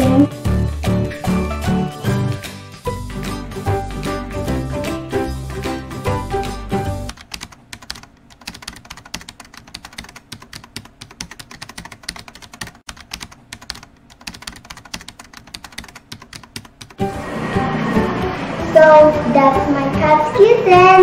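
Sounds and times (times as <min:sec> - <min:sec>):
music: 0:00.0 - 0:07.2, 0:17.0 - 0:21.0
keyboard typing clicks: 0:07.1 - 0:17.0.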